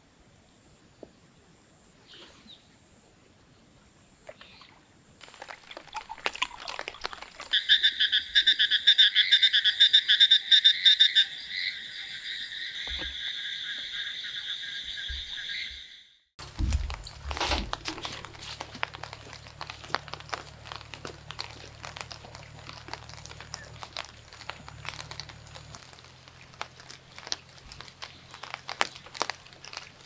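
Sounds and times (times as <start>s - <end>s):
frogs trilling in chorus: 4.4s - 16.1s.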